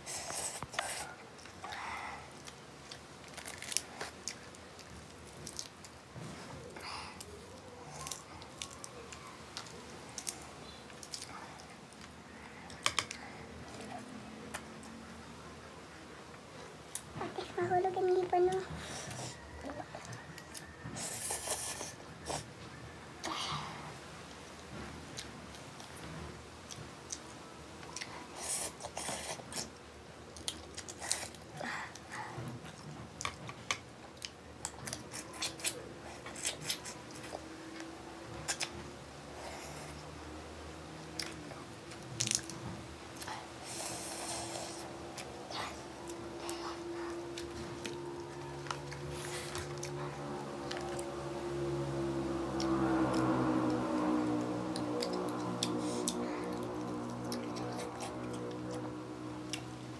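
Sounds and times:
chewing and sucking mouth sounds: 0:18.0 - 0:22.6, 0:26.7 - 0:40.4, 0:43.2 - 0:59.8.

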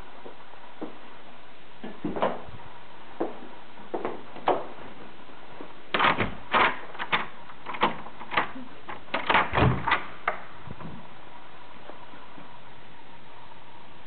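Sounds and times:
doorknob and latch clicking: 0:05.9 - 0:10.4.

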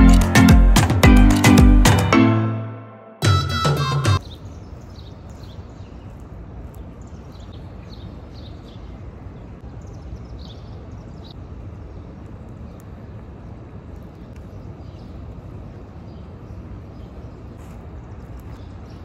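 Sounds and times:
low street rumble: 0:04.1 - 0:19.0
small birds chirping: 0:04.2 - 0:19.0.

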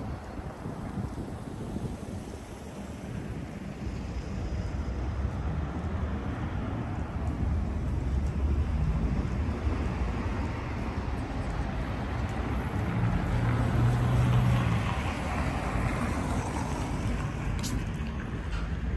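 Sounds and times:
street traffic rumble: 0:00.0 - 0:18.9
wind buffeting microphone: 0:00.0 - 0:18.9
vehicle passing: 0:07.8 - 0:18.6.

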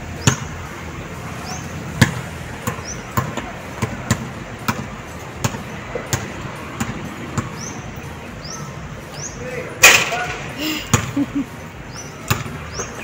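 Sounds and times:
basketball bouncing on hard court: 0:00.2 - 0:00.5, 0:02.0 - 0:07.7, 0:10.9 - 0:11.2, 0:12.2 - 0:12.9.

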